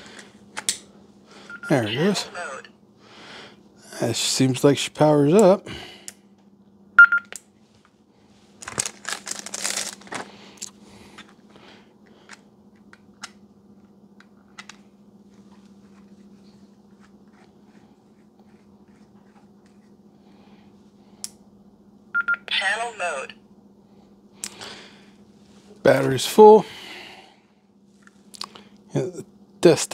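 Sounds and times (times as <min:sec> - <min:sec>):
short electronic beep: 0:07.0 - 0:07.2.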